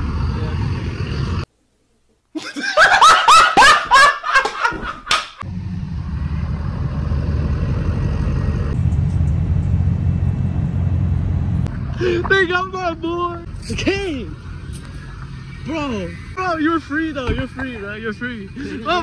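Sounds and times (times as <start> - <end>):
low rumble of vehicle engines: 0.0 - 1.5, 5.4 - 19.0.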